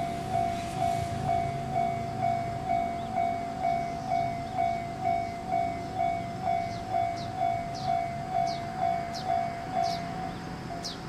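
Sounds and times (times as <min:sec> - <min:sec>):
railroad crossing warning bell: 0:00.0 - 0:11.0.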